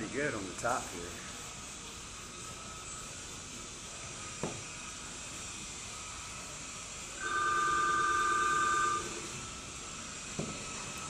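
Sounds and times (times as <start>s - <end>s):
low steady hiss: 0.0s - 11.0s
warbling electronic ringing tone: 7.2s - 9.3s.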